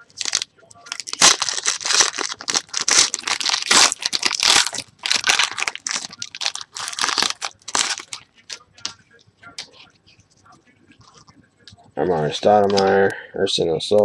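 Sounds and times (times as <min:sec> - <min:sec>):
foil wrapper tearing and crinkling: 0:00.0 - 0:08.6.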